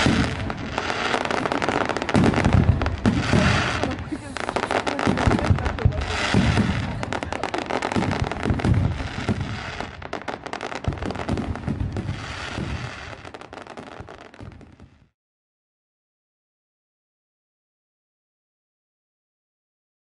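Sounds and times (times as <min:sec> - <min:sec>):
fireworks crackling and cracking: 0:00.0 - 0:15.2
low fireworks booms: 0:00.0 - 0:15.2.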